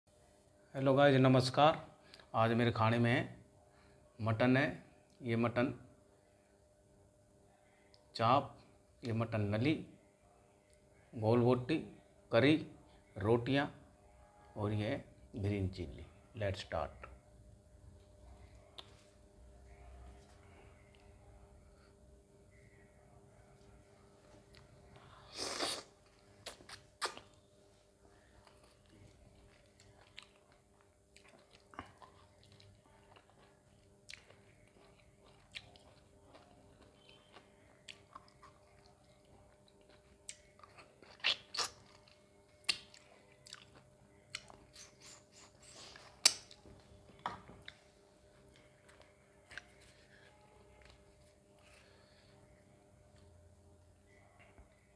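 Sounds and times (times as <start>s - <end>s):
person chewing with wet mouth clicks: 28.4s - 45.2s.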